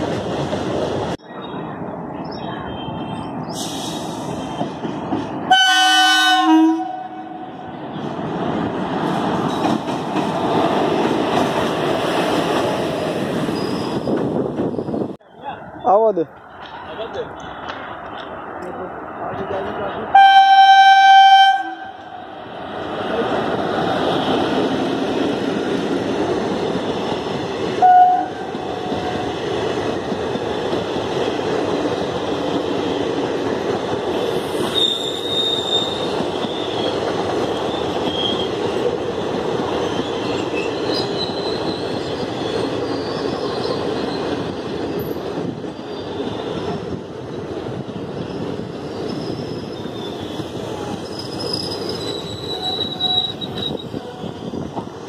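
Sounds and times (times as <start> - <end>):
train wheels rumbling on rails: 0.0 - 20.3, 21.0 - 55.0
train horn toot: 5.5 - 7.6, 20.1 - 22.2, 27.8 - 28.5
clatter at rail joints: 8.9 - 12.8
high wheel squeals: 13.5 - 14.1, 34.3 - 38.5, 39.9 - 44.4, 45.7 - 46.6, 48.8 - 54.6.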